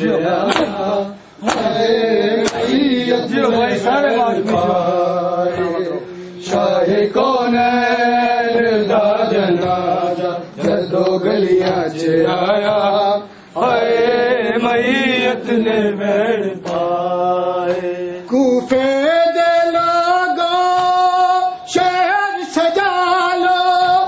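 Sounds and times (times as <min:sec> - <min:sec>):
men chanting a lament: 0:00.0 - 0:24.0
hand slaps on chest: 0:00.5 - 0:00.8, 0:01.4 - 0:01.8.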